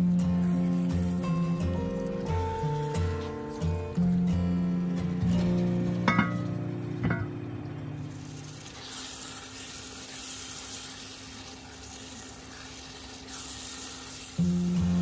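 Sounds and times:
sauce sizzling and bubbling: 0.0s - 4.2s, 6.7s - 15.0s
spatula stirring: 8.2s - 14.5s.

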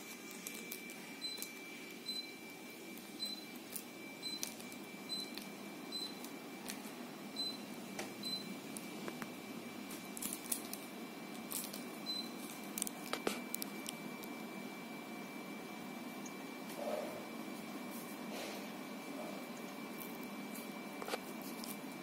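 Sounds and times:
fan hiss: 0.0s - 22.0s
air conditioner short high beeps: 0.6s - 9.0s, 12.0s - 12.5s.

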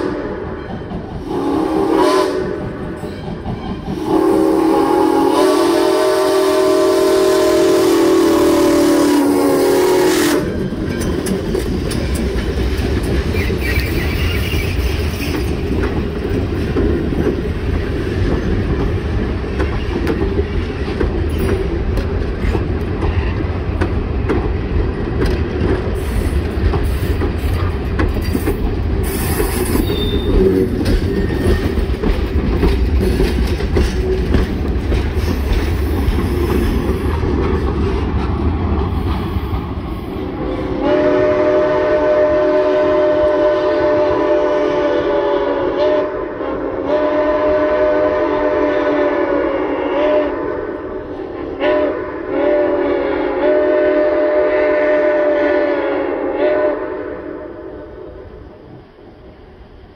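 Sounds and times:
train wheels rumbling and clicking: 0.0s - 45.9s
wheel flange squeal: 13.3s - 15.5s, 29.0s - 31.8s.

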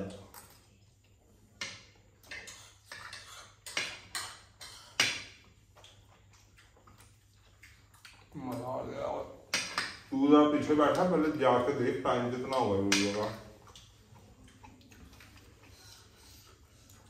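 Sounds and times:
metal spoon scraping a plate: 2.2s - 5.1s.

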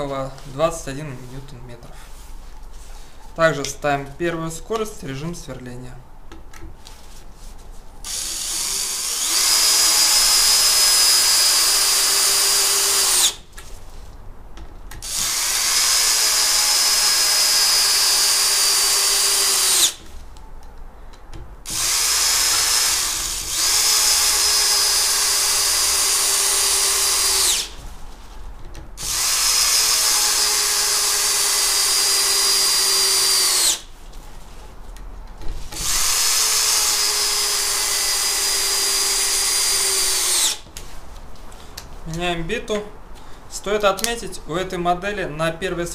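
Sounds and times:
cordless drill driving screws: 8.0s - 13.4s, 15.0s - 20.0s, 21.7s - 27.8s, 29.0s - 33.8s, 35.8s - 40.6s.

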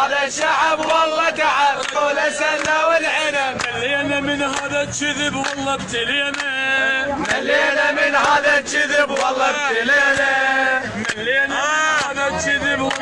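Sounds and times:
man chanting: 11.0s - 13.0s.

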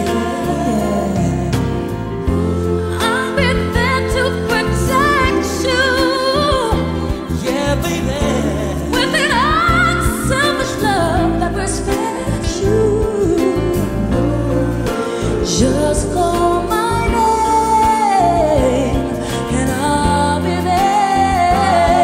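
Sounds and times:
instrumental backing: 0.0s - 22.0s.

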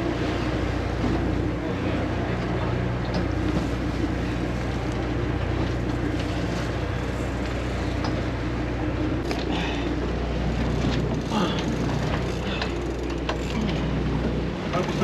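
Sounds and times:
boat engine humming: 0.0s - 15.0s
wind and water noise: 0.0s - 15.0s.

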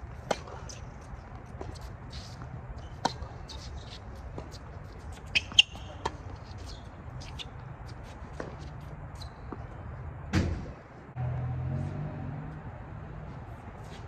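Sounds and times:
tennis ball bouncing on court: 0.1s - 9.7s
shoe squeak: 0.2s - 9.8s
racket striking ball: 5.2s - 6.3s.

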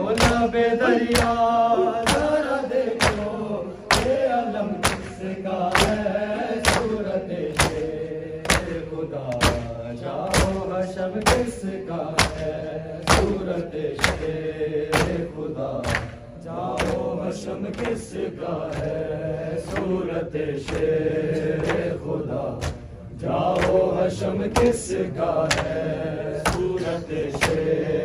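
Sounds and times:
men chanting: 0.0s - 28.0s
hands slapping bare chests: 0.1s - 0.5s, 1.1s - 9.7s, 15.8s - 16.2s, 25.4s - 25.8s.

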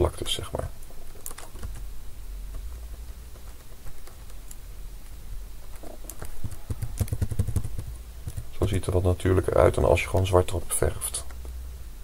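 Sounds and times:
low steady hum: 0.0s - 12.0s
mouse and keyboard clicks: 1.1s - 1.8s, 5.6s - 8.5s.

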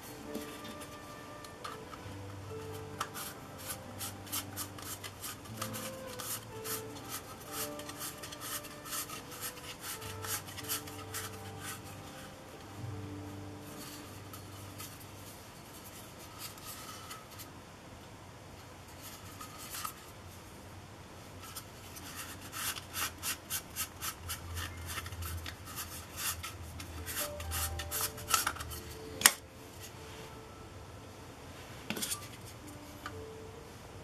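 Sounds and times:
plastic rubbing and scraping: 0.3s - 12.2s.

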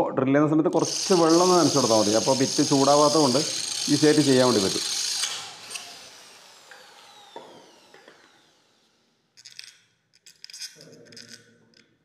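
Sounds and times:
electric drill whine spinning down: 0.8s - 9.4s
small metal parts clicking: 9.4s - 12.0s.

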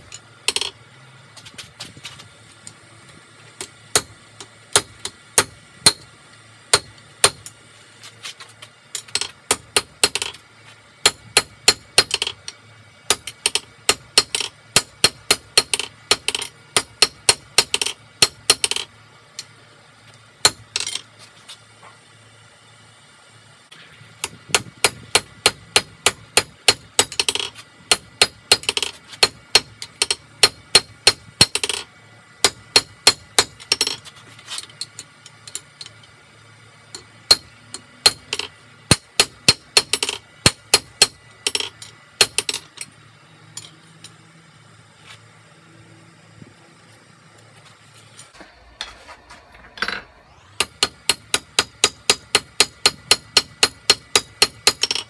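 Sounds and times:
low steady hum: 0.0s - 55.0s
hammer striking steel on anvil: 3.9s - 4.1s, 4.7s - 6.1s, 6.7s - 7.5s, 9.0s - 10.4s, 11.0s - 12.3s, 13.1s - 18.8s, 20.4s - 21.0s, 24.2s - 31.8s, 32.4s - 34.0s, 37.0s - 42.9s, 50.6s - 55.0s.

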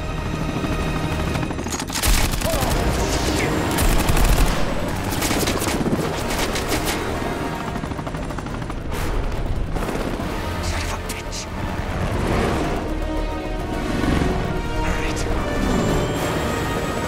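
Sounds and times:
helicopter engines and rotors: 0.0s - 17.0s.

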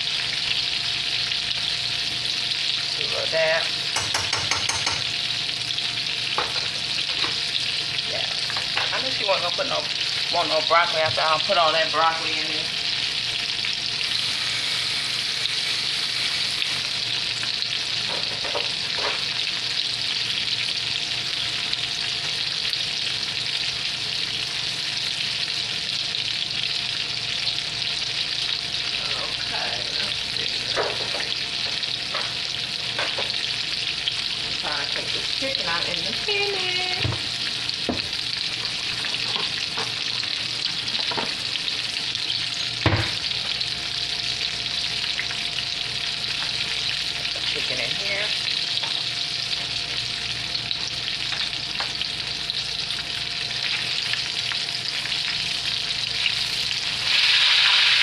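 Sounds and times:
chicken frying in hot oil: 0.0s - 58.0s
kitchenware clicking and knocking: 4.0s - 5.1s.

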